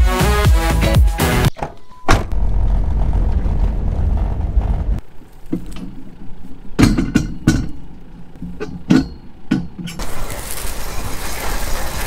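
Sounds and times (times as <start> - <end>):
vehicle interior rumble: 1.5 - 12.0
metallic clanks of steel drawbar: 5.5 - 10.1.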